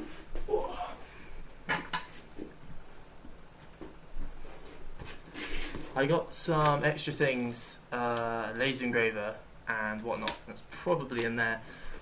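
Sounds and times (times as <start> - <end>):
soft handling noises: 2.0 - 8.8.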